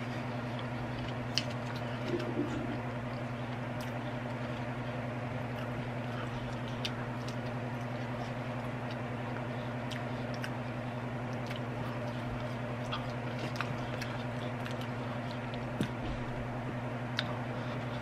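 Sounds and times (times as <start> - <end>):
steady low hum: 0.0 - 18.0
chewing: 0.4 - 4.7, 5.5 - 16.0.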